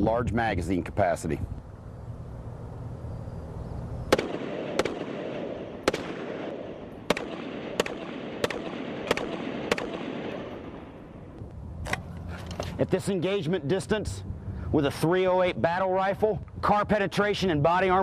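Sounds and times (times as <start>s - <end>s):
rifle shots echoing: 4.1s - 11.4s.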